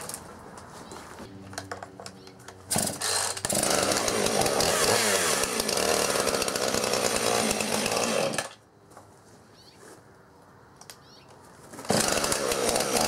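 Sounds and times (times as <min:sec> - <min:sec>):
chainsaw starting and revving: 0:02.7 - 0:08.6, 0:11.8 - 0:13.0.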